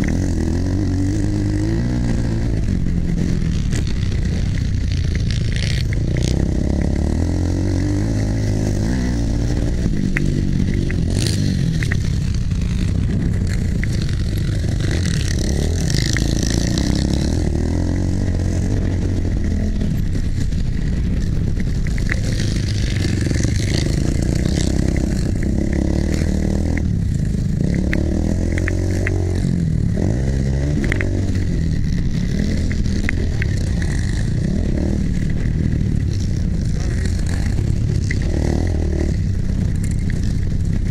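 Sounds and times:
motocross bike engine revving: 0.0s - 40.9s
wind noise: 0.0s - 40.9s
clicks and rattles: 9.5s - 17.2s, 19.8s - 29.4s.

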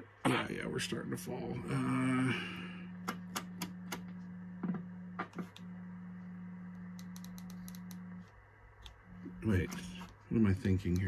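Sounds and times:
steady low hum: 0.0s - 11.0s
rotary switch clicking: 6.9s - 8.0s.

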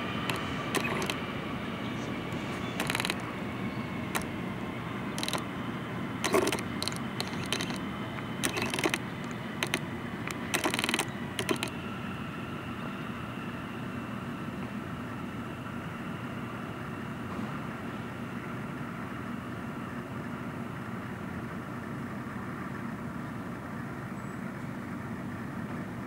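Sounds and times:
wheels clacking over rail joints: 0.0s - 1.3s, 2.0s - 11.8s
subway train rumble: 0.0s - 7.2s, 11.1s - 26.0s.

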